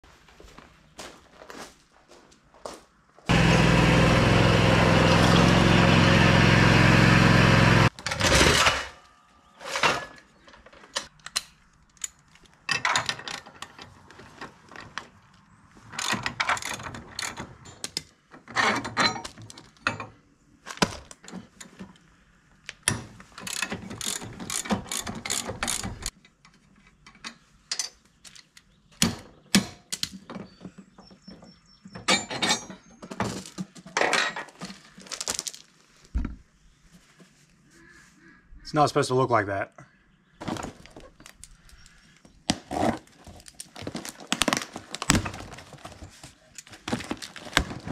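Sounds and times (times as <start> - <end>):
mower engine running: 3.3 - 8.7.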